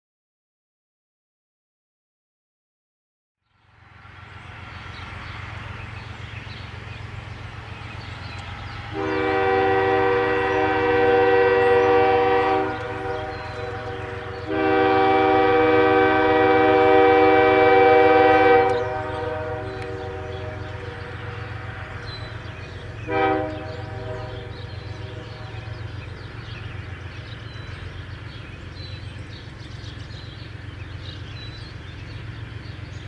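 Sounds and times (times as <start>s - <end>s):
locomotive engines rumbling: 3.6s - 33.0s
locomotive air horn blasts: 8.8s - 26.0s.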